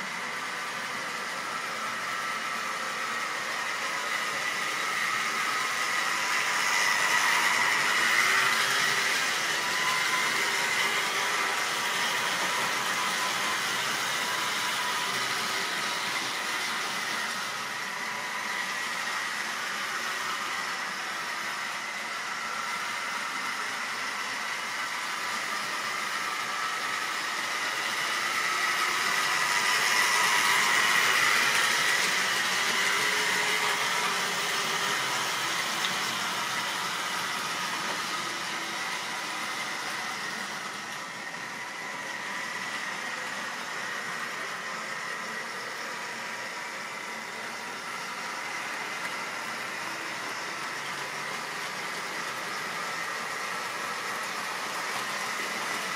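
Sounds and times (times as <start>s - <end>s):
model train motor whirring: 1.9s - 44.9s.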